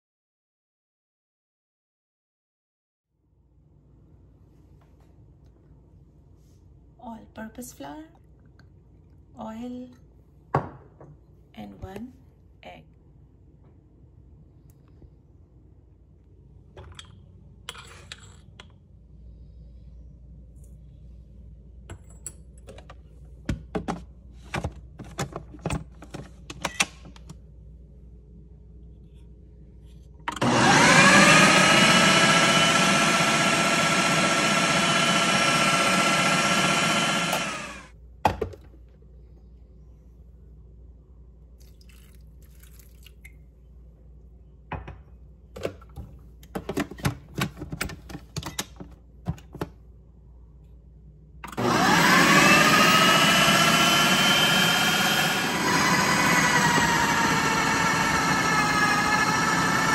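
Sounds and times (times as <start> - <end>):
food processor motor whining: 30.3 - 37.9, 51.5 - 59.9.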